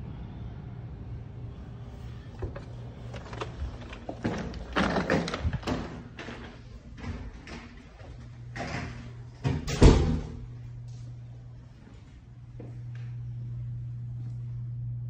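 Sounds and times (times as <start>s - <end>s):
steady low hum: 0.0s - 15.0s
door clattering open: 2.4s - 10.4s.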